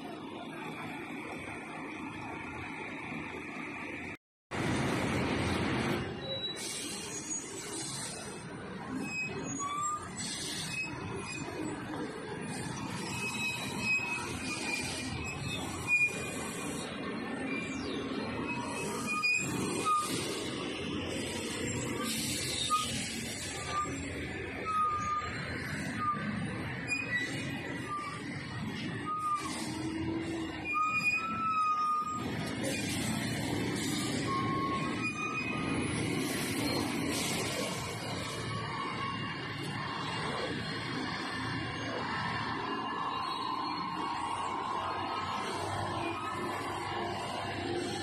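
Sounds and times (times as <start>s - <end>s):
dump truck engines rumbling: 0.0s - 48.0s
high squeals: 6.1s - 48.0s.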